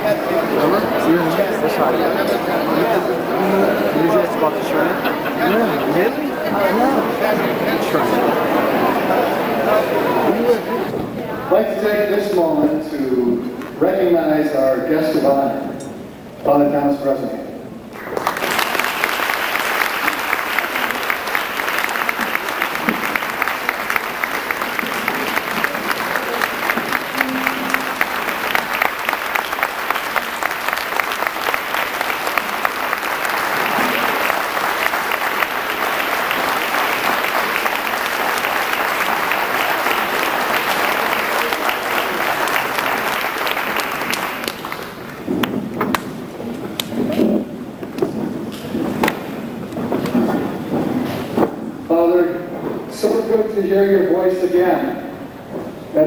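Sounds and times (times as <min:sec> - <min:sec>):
audience applauding: 0:18.0 - 0:46.9.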